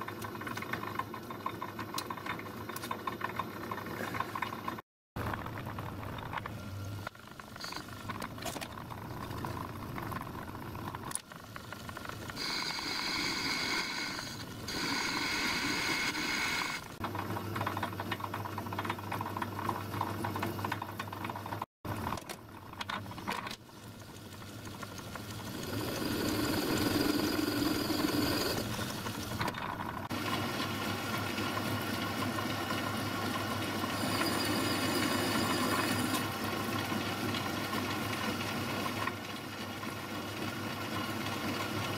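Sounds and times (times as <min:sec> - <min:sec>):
metal lathe cutting steel: 0:12.4 - 0:16.9, 0:25.5 - 0:28.7, 0:33.8 - 0:36.3.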